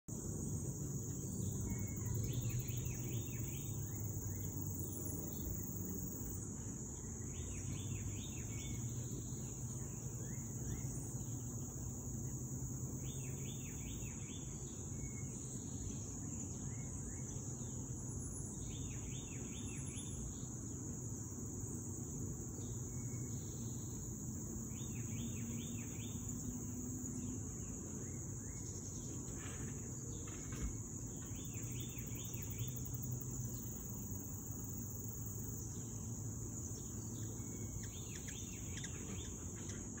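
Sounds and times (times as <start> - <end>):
high-pitched insect chorus: 0.1 - 40.0
insect chirping bursts: 0.2 - 6.4, 30.9 - 39.5.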